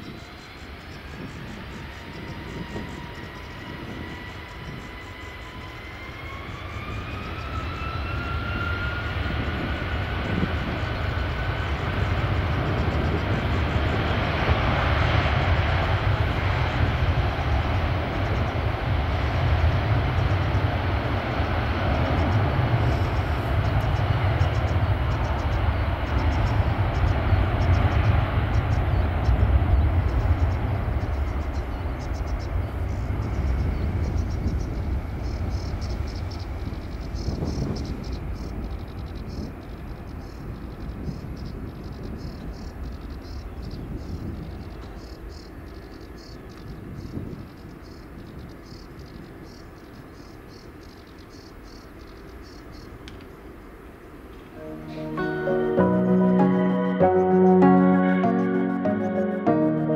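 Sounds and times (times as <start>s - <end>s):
jet engines spooling up: 0.0s - 39.8s.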